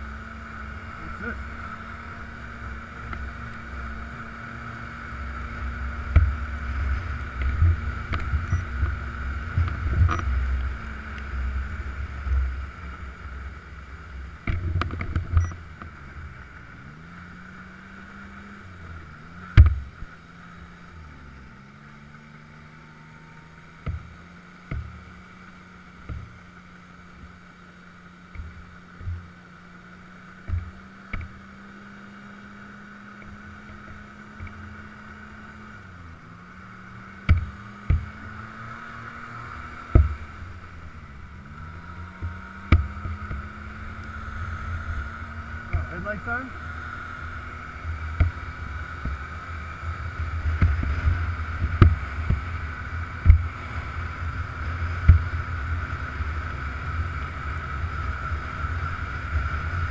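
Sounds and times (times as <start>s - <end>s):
snowmobile engine running: 0.0s - 59.9s.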